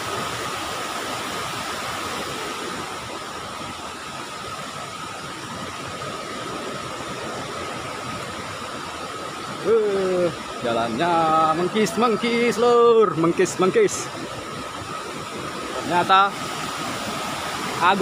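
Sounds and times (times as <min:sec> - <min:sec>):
waterfall rushing: 0:00.0 - 0:18.0
thin steady whine: 0:09.7 - 0:18.0.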